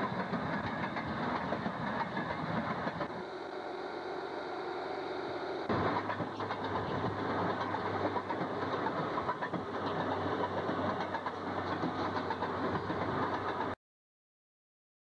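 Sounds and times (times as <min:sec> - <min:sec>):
wheels clattering over rail joints: 0:00.0 - 0:03.8, 0:05.6 - 0:13.8.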